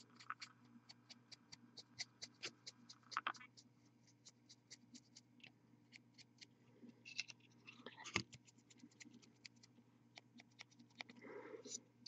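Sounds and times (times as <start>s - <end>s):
paint brush scratching: 0.0s - 5.3s.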